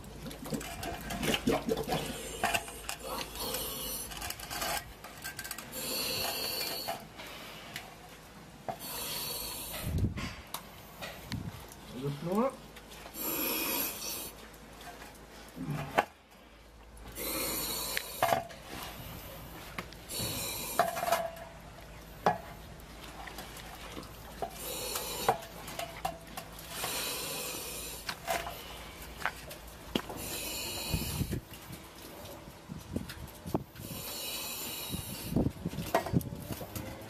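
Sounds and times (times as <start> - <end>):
liquid manure sloshing: 21.3 - 33.8.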